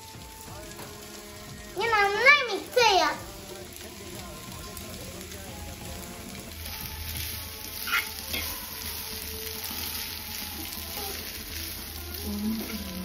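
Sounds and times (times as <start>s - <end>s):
noodles sizzling in a frying pan: 0.0s - 13.0s
fork scraping a pan: 7.8s - 9.0s.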